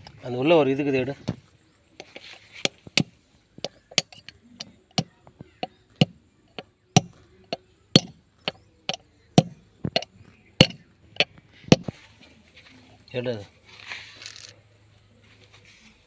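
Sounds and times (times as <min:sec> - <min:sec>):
hammer striking steel punch: 0:08.0 - 0:08.2, 0:10.6 - 0:10.8.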